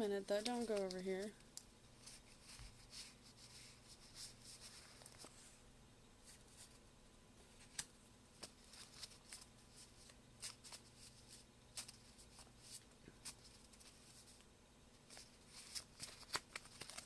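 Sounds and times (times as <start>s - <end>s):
cards being shuffled: 0.3s - 1.4s, 7.6s - 14.4s, 15.1s - 17.0s.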